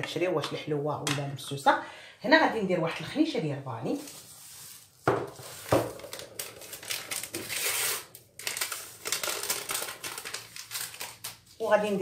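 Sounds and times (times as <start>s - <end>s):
sachet crinkling and rustling: 3.9s - 12.0s.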